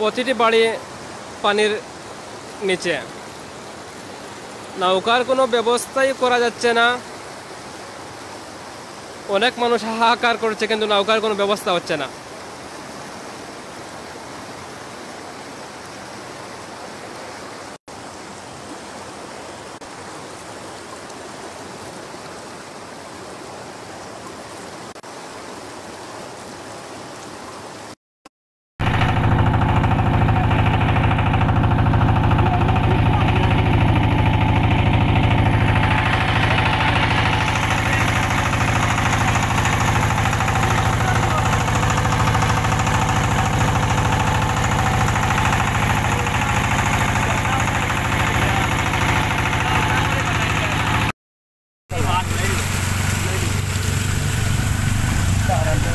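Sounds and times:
floodwater rushing over road: 0.0s - 28.0s, 28.8s - 51.1s, 51.9s - 55.9s
boat motor humming: 28.8s - 51.1s, 51.9s - 55.9s.

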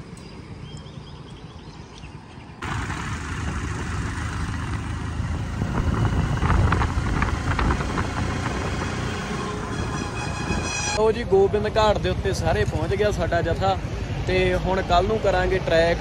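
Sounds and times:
motorcycle engine running: 2.6s - 9.9s
wind rushing over microphone: 2.9s - 11.0s.

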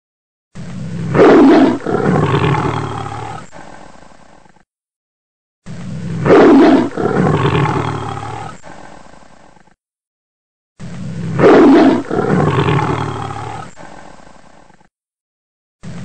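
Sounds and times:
big cat roaring: 0.6s - 3.8s, 5.7s - 9.8s, 10.8s - 14.9s.

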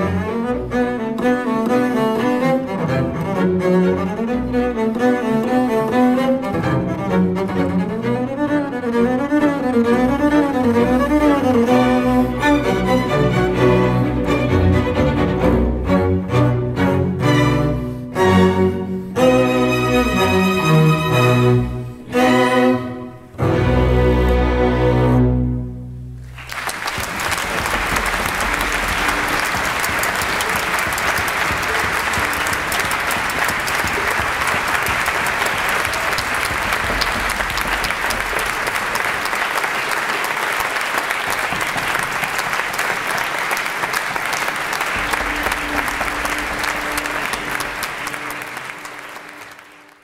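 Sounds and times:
double bass and orchestra chord: 6.4s - 26.5s
audience applause: 26.2s - 50.0s.

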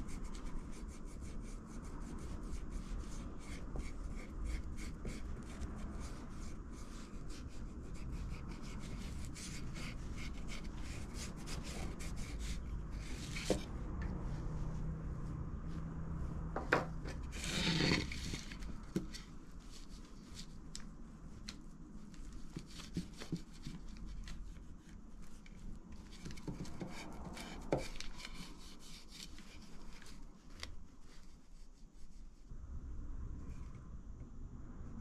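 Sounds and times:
scraping on wood: 16.6s - 19.2s.

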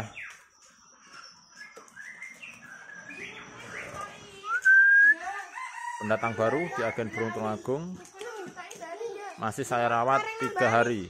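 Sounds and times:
songbirds chirping: 0.0s - 11.0s
clear rising bird whistle: 1.5s - 5.2s.

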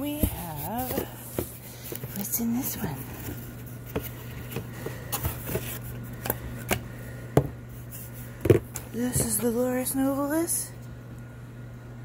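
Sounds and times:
knocks and rustles of packaging: 0.0s - 6.8s
steady low hum: 0.0s - 12.0s.

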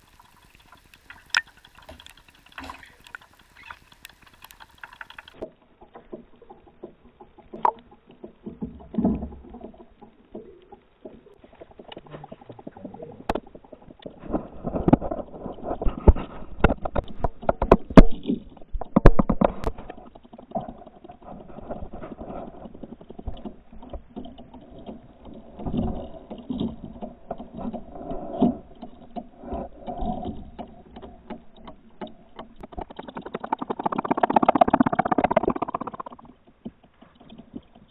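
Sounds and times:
sharp ticks: 32.5s - 36.3s.

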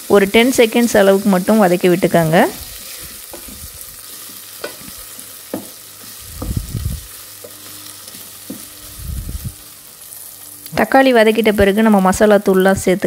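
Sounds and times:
vegetables sizzling in oil: 0.0s - 13.0s
spatula scraping and knocking pot: 2.7s - 6.7s, 7.4s - 8.9s.

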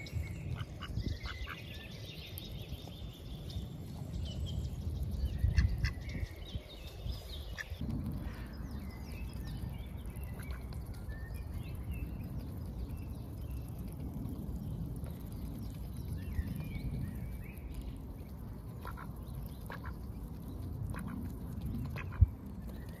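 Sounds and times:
ducks pecking at grass: 17.6s - 23.0s.

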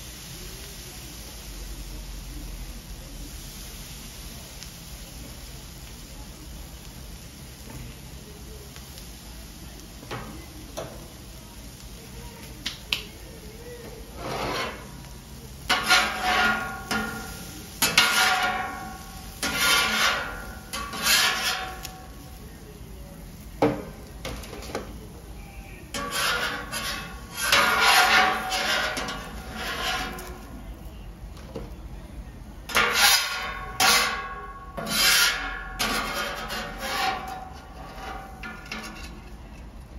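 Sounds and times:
metal spatulas scraping griddle: 14.0s - 22.2s, 25.9s - 30.5s, 32.7s - 39.4s.

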